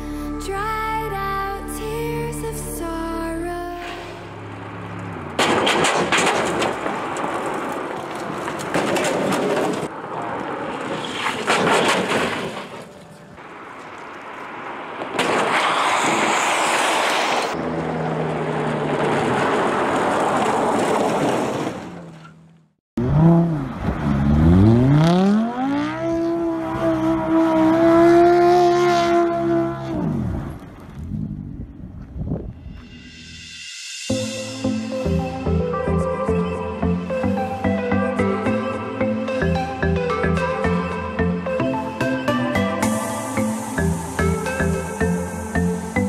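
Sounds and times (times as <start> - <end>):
tyre and road noise: 3.5 - 38.5, 39.3 - 46.0
car engine revving: 22.0 - 31.9.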